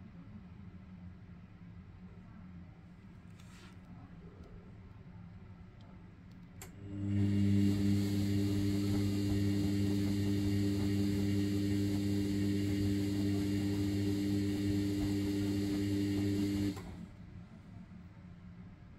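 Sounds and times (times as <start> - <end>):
washing machine hum: 6.6 - 17.6.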